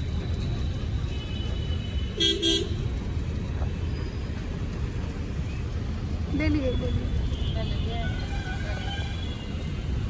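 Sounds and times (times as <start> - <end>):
vehicle rumbling on road: 0.0 - 10.0
vehicle horn toots: 2.2 - 2.8.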